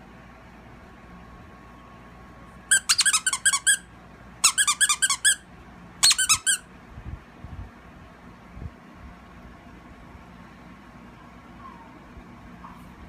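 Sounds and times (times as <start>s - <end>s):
squeaky dog toy squeaking: 2.7s - 5.4s, 6.0s - 6.6s.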